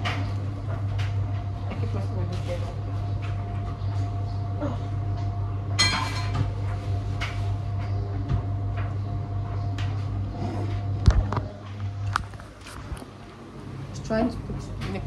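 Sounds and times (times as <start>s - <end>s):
steady low hum: 0.0s - 15.0s
dishes and glassware clinking: 5.8s - 6.5s.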